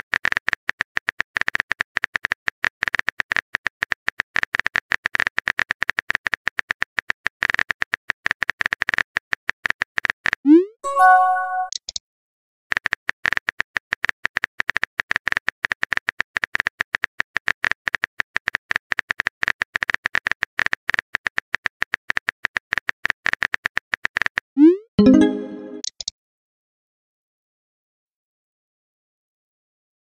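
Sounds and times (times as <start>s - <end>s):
brief chime: 10.8s - 11.8s.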